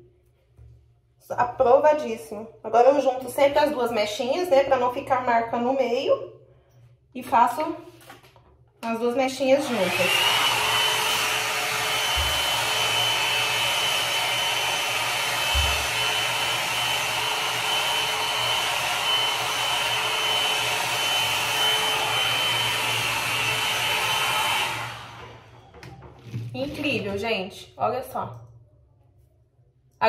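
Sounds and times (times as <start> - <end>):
hot air brush blowing: 9.6 - 25.5.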